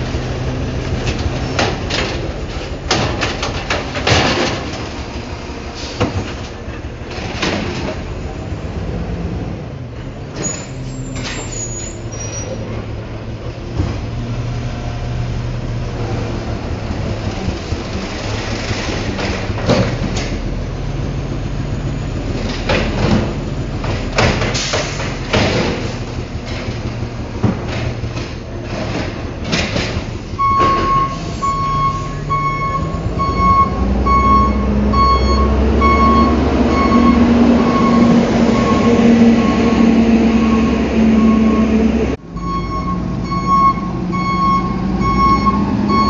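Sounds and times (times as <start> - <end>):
garbage truck running: 0.0 - 46.0
cart knocking and clattering: 0.8 - 5.3, 17.1 - 20.5, 22.3 - 31.2.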